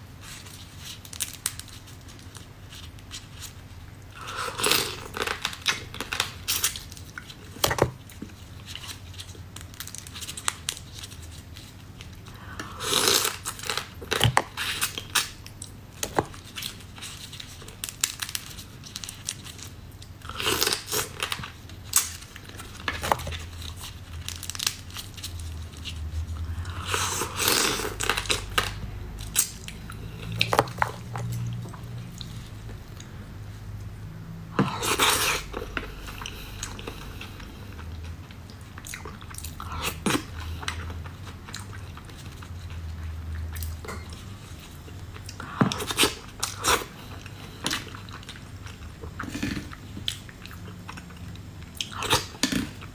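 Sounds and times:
chewing and sucking crab: 34.6 - 52.9.

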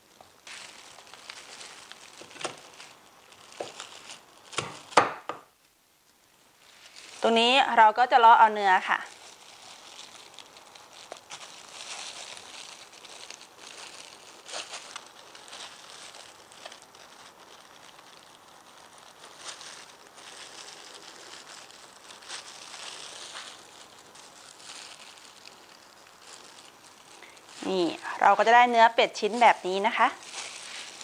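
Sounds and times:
plastic gloves crinkling: 0.0 - 31.0.

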